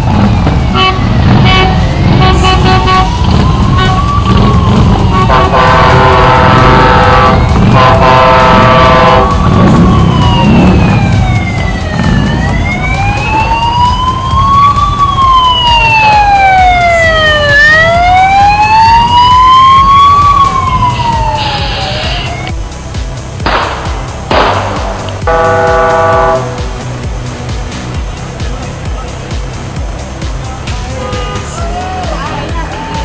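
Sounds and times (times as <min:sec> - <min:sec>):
siren wailing: 0:00.0 - 0:22.6, 0:24.7 - 0:26.7
truck engine rumble: 0:00.0 - 0:33.0
truck horn blasts: 0:00.7 - 0:04.2, 0:05.1 - 0:09.4, 0:25.2 - 0:26.9, 0:31.0 - 0:31.6.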